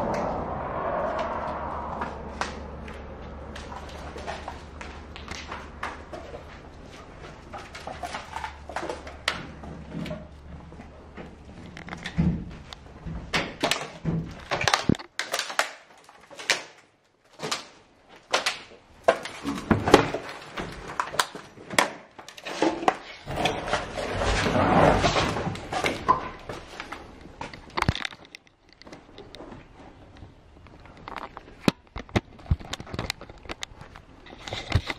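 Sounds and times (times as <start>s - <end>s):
scraping and rustling: 19.1s - 34.9s.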